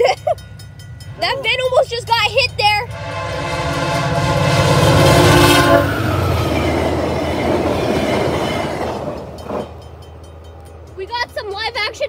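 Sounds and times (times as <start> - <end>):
train wheels clattering on rails: 0.0 - 12.0
locomotive horn: 2.9 - 9.2.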